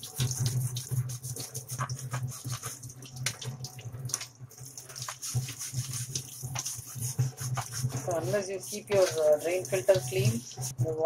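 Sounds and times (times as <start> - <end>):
tap water splashing into sink: 0.0 - 6.7
brush scrubbing filter: 0.0 - 11.0.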